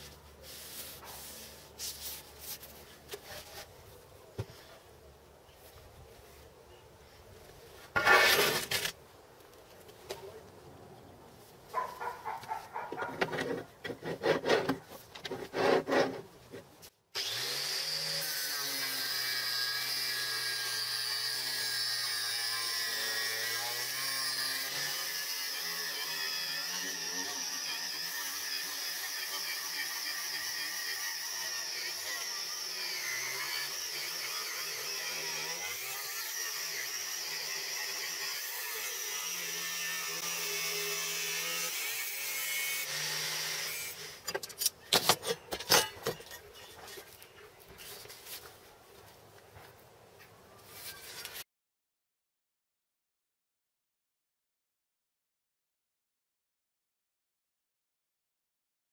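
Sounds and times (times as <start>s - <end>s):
angle grinder cutting steel: 17.2s - 44.4s.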